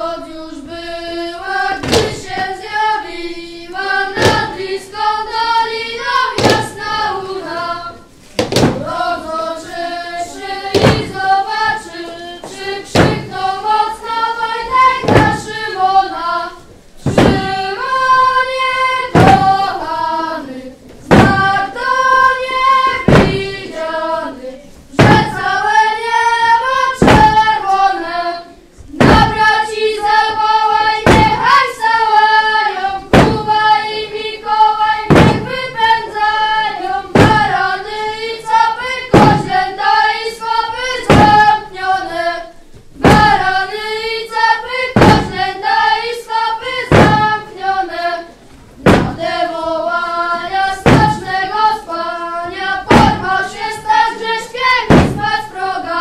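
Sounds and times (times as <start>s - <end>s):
children singing in unison: 0.0s - 56.0s
staffs thudding on wooden floor: 1.8s - 2.5s, 4.2s - 4.6s, 6.4s - 7.0s, 8.4s - 9.0s, 10.7s - 11.8s, 12.4s - 13.4s, 14.7s - 15.6s, 17.0s - 17.7s, 19.1s - 19.8s, 21.0s - 21.7s, 22.8s - 23.6s, 25.0s - 25.4s, 27.0s - 27.5s, 29.0s - 29.5s, 31.0s - 31.5s, 33.1s - 33.6s, 35.1s - 35.6s, 37.1s - 37.6s, 39.1s - 39.6s, 41.0s - 41.6s, 43.0s - 43.6s, 45.0s - 45.5s, 46.9s - 47.5s, 48.8s - 49.4s, 50.8s - 51.4s, 52.8s - 53.8s, 54.8s - 55.4s.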